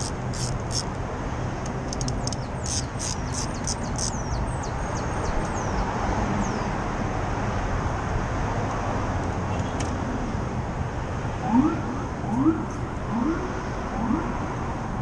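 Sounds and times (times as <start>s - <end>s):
street traffic hum: 0.0s - 15.0s
birds chirping: 2.0s - 5.8s.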